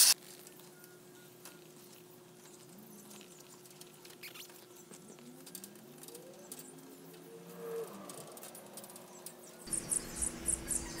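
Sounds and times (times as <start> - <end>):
faint steady hum: 8.0 - 11.0.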